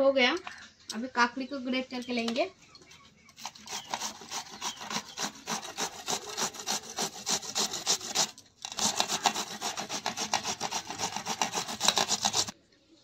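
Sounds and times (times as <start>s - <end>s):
cucumber grated on metal grater: 3.4s - 12.5s.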